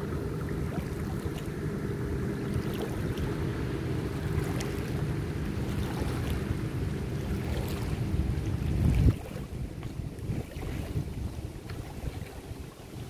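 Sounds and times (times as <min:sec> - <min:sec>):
distant speedboat engine: 0:00.0 - 0:13.0
wind on microphone: 0:05.6 - 0:13.0.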